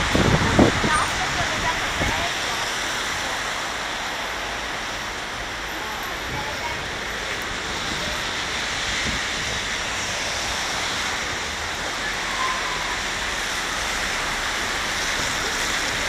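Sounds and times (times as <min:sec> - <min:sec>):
wind buffeting microphone: 0:00.0 - 0:03.4, 0:06.2 - 0:11.8
tyres hissing on wet road: 0:00.0 - 0:16.0.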